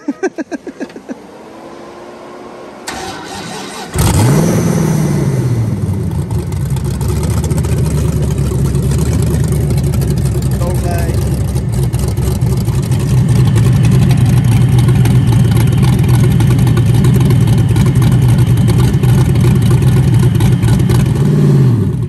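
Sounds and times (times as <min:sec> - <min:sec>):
engine cranking: 0:02.8 - 0:04.6, 0:06.1 - 0:21.3
engine starting and idling: 0:02.8 - 0:22.0.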